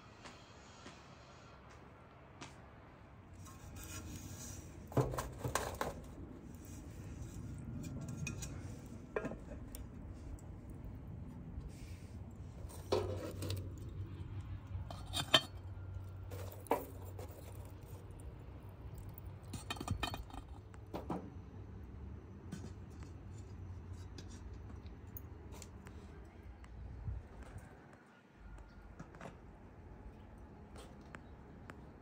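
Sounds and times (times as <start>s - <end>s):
charcoal clinking on metal lid: 14.8s - 15.8s, 19.5s - 20.6s.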